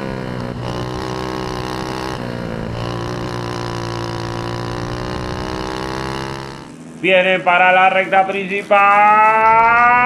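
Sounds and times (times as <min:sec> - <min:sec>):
kart engine running hard: 0:00.0 - 0:10.0.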